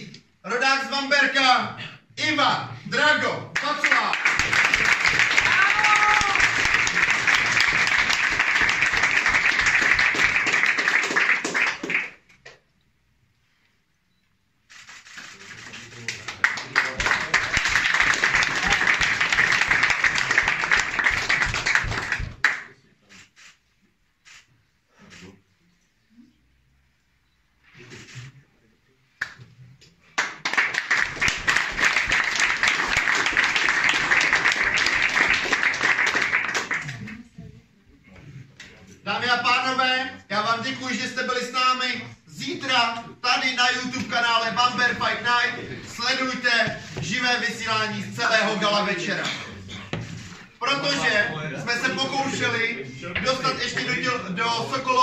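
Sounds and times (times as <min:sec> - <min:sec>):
audience applauding: 0:03.6 - 0:12.3, 0:15.6 - 0:22.7, 0:30.2 - 0:37.2.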